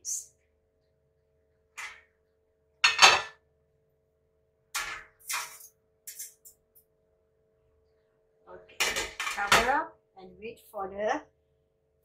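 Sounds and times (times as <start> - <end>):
faint steady hum: 0.0 - 8.8
metal pot clanking: 2.8 - 3.4.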